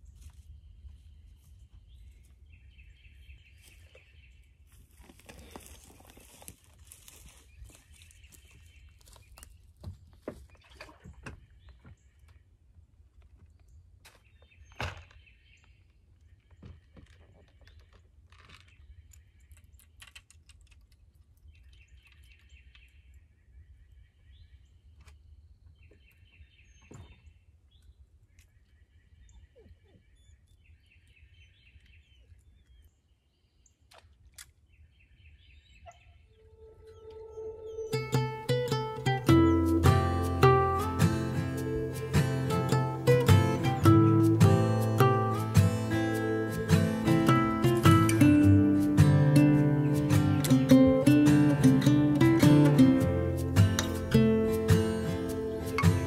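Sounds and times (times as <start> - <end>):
knocks and clatter on wooden dock: 9.8 - 12.1, 16.4 - 18.8, 26.8 - 27.3
songbird trilling: 35.4 - 48.5.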